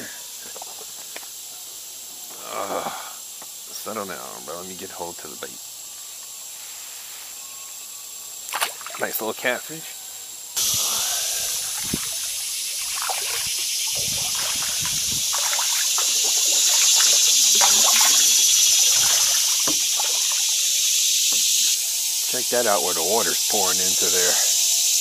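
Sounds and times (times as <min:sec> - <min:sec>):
cicadas droning: 0:00.0 - 0:25.0
kayak paddle dipping in water: 0:11.6 - 0:21.5.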